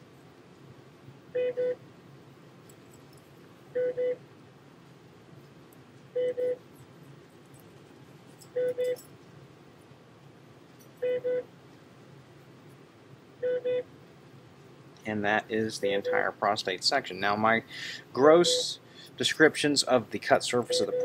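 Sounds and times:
electronic double beeps: 20.7s - 21.0s.

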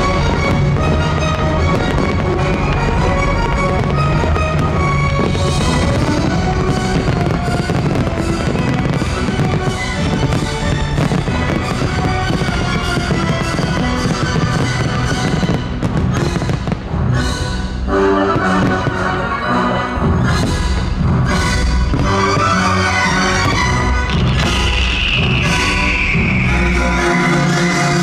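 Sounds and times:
fireworks bursting and crackling: 0.0s - 17.2s, 20.4s - 28.0s
loud music: 0.0s - 28.0s.

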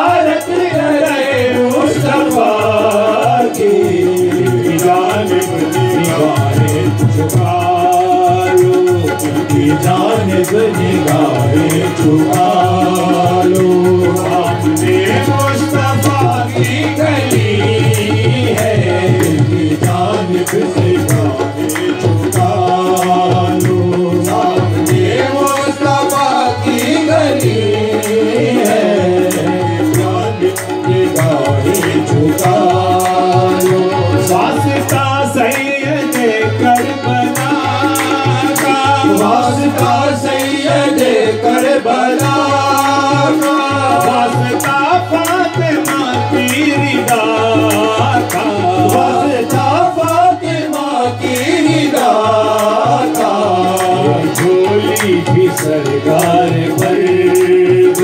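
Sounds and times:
harmonium melody: 0.0s - 58.0s
tabla rhythm: 0.0s - 58.0s
voices singing: 0.0s - 58.0s
hand clapping: 29.4s - 40.0s, 42.2s - 49.8s.

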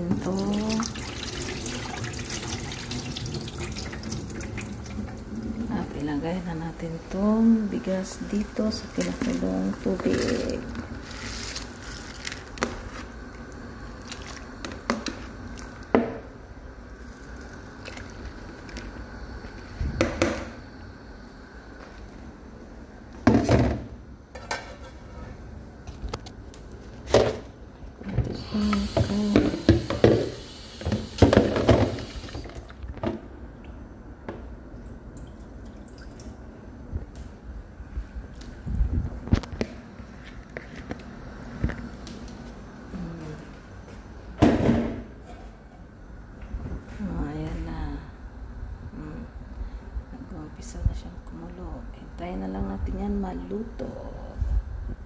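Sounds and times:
water running in a metal sink: 0.0s - 6.3s, 28.4s - 32.7s
boiling water bubbling: 0.0s - 21.3s, 26.4s - 40.1s
rice and water poured into pot: 0.3s - 5.3s
steady hiss: 28.4s - 32.6s.

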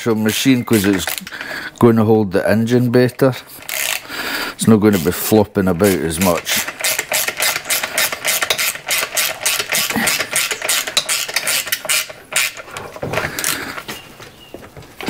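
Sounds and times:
hand tool clicking: 0.0s - 1.8s, 3.6s - 4.2s, 5.8s - 13.8s.

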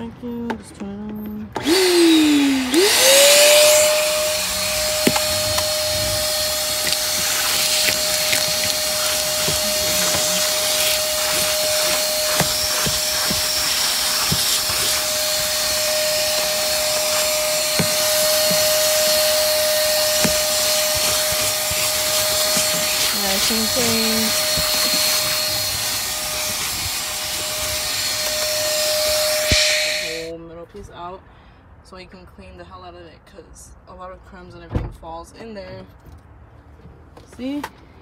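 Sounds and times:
shop vacuum motor whine: 1.6s - 30.3s
crumbs clicking in nozzle: 6.4s - 15.4s.

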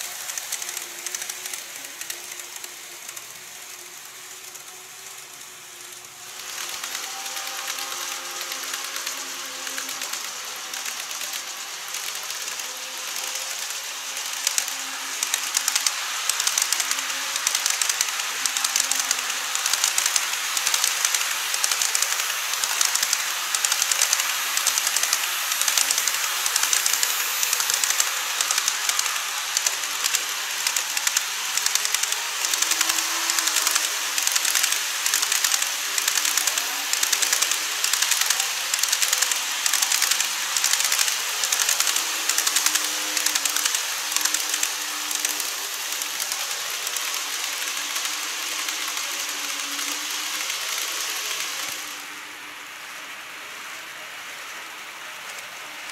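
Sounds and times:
wheels clicking over rail joints: 0.0s - 51.9s
model train wheels and motors hissing: 0.0s - 55.9s.

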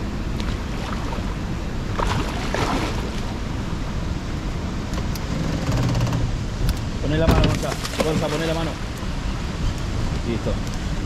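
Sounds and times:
river water rushing and churning: 0.0s - 11.0s
water splashing: 0.3s - 3.6s, 7.4s - 8.9s.

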